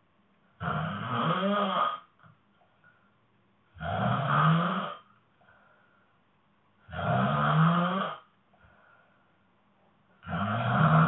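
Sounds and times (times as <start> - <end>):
woman snoring: 0.6 - 2.1, 3.8 - 5.1, 6.9 - 8.3, 10.2 - 11.0.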